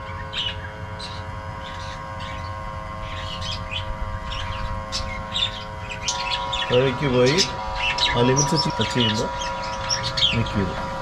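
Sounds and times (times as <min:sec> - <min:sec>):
electric gear motor humming: 0:00.0 - 0:11.0
small birds chirping: 0:00.0 - 0:11.0.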